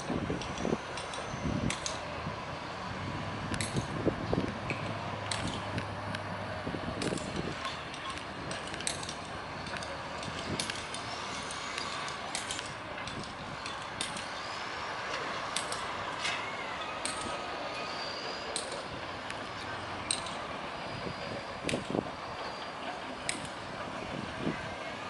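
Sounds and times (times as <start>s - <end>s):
faint thin whistling tones: 16.4s - 18.9s.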